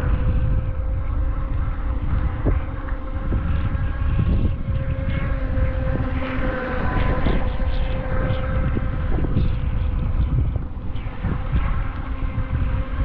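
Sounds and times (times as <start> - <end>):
small electric motor whine: 0.0 - 13.0
wind buffeting microphone: 0.0 - 13.0.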